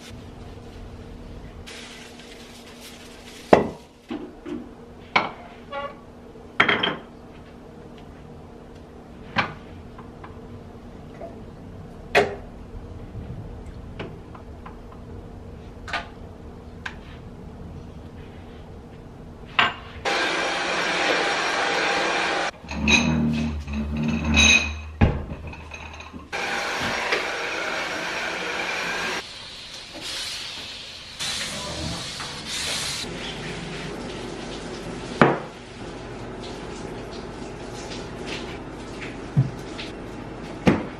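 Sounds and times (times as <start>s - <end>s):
stick vacuum running on floor: 20.1s - 22.6s, 26.3s - 29.2s.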